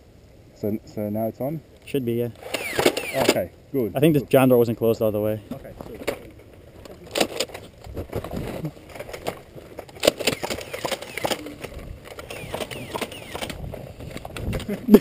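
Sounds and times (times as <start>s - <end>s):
person moving about: 5.4s - 15.0s.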